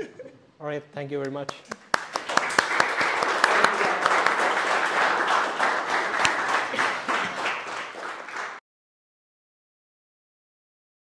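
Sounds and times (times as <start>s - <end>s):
audience applauding: 1.7s - 8.6s.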